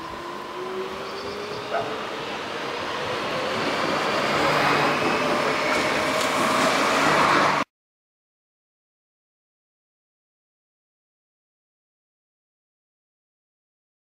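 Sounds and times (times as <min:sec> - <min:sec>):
passenger train passing: 0:00.0 - 0:07.7.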